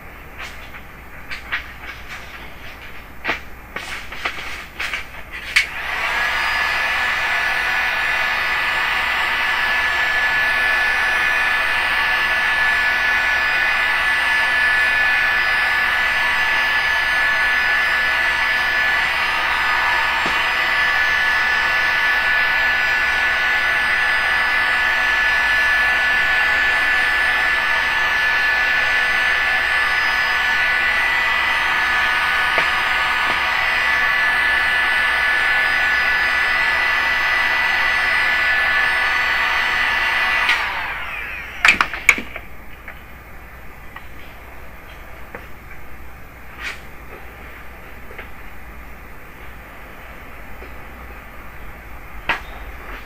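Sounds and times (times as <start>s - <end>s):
heat gun blowing with whine: 0.1s - 42.5s.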